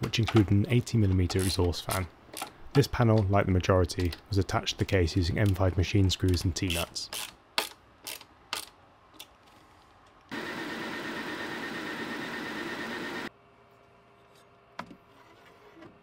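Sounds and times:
printer fans and motors whirring: 0:10.3 - 0:13.4.

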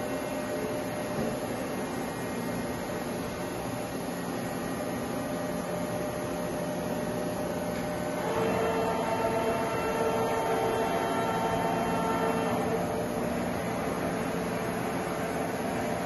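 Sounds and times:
machine hum: 0:00.0 - 0:16.0
machine whine: 0:03.3 - 0:16.0.

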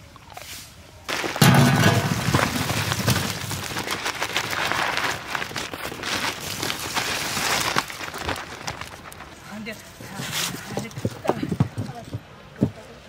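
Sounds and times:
prawns pouring onto steel plate: 0:01.1 - 0:09.3.

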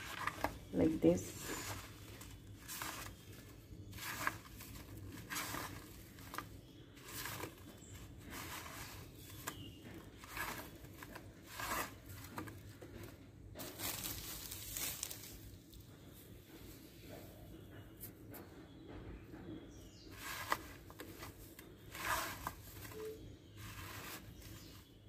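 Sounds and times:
hands rubbing coated slices on plate: 0:00.0 - 0:12.6, 0:20.2 - 0:24.9.

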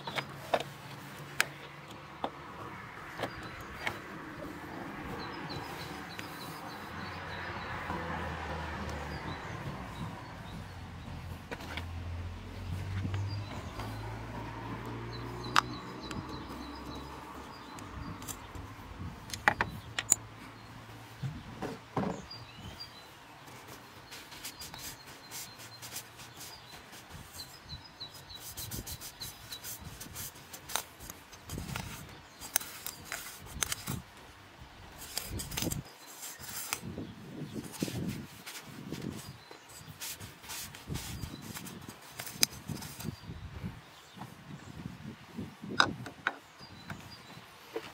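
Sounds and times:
birds chirping faintly: 0:00.0 - 0:47.9
glove and rag rubbing: 0:23.4 - 0:34.0, 0:37.5 - 0:43.2.

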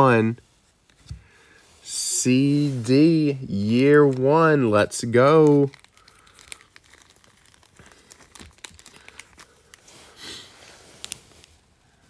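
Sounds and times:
soft rustle: 0:00.2 - 0:04.6, 0:05.2 - 0:12.0
cards and plastic crinkling: 0:03.3 - 0:11.8.

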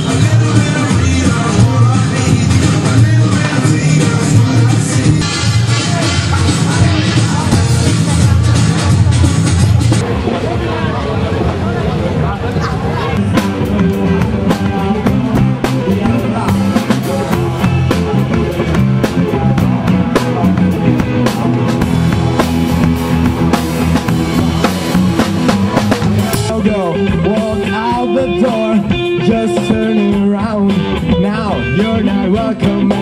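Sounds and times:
drum kit beat: 0:00.0 - 0:10.0, 0:13.2 - 0:33.0
live rock band playing: 0:00.0 - 0:10.2, 0:13.0 - 0:33.0
electric guitar playing: 0:13.0 - 0:33.0.

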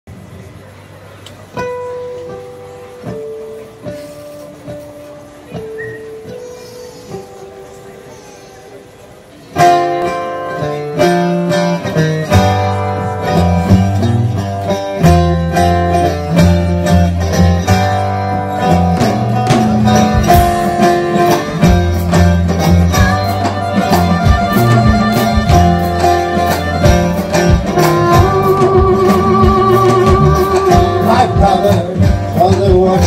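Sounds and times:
electric guitar: 0:01.1 - 0:33.0
double bass low notes: 0:10.8 - 0:33.0
drums and cymbals: 0:12.3 - 0:33.0.

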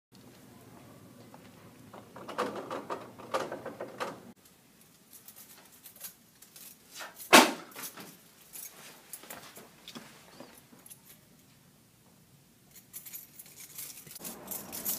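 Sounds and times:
shuffling: 0:05.2 - 0:11.2.

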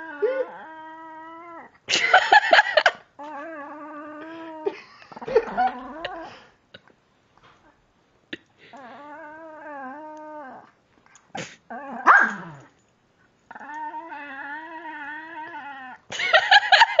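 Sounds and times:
dog barking rapidly: 0:12.1 - 0:12.4
dog whining: 0:13.5 - 0:16.1.

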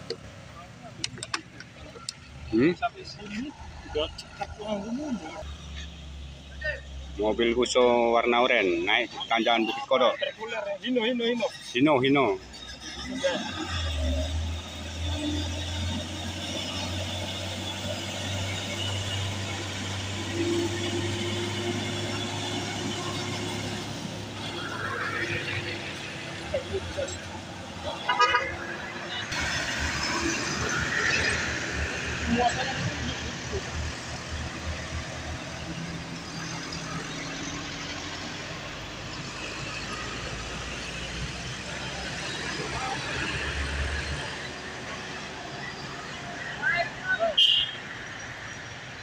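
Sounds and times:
truck diesel engine drone: 0:00.0 - 0:49.0
high engine whine: 0:11.3 - 0:47.2.

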